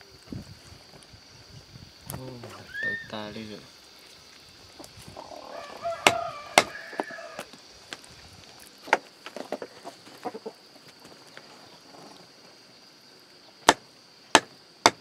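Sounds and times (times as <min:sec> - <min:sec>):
chicken clucking: 0:09.5 - 0:10.6
knife chopping meat and bone: 0:14.4 - 0:15.0.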